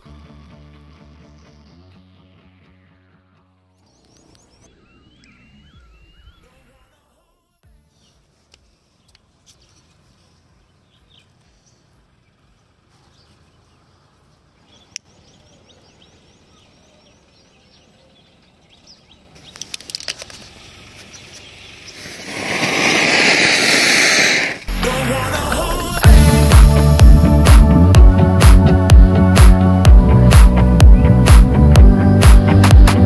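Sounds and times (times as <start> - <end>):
firework fuse sputtering: 19.3 - 26.0
faint clicks: 19.4 - 21.1
firework spraying sparks hiss: 20.1 - 24.8.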